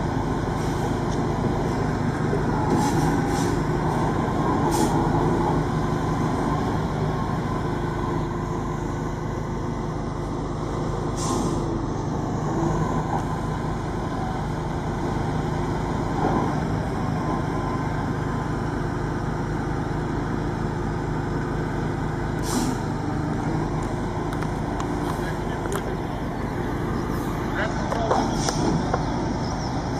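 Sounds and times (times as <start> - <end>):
truck diesel engine running: 0.0 - 29.9
air release hiss: 11.2 - 11.7, 22.4 - 22.8.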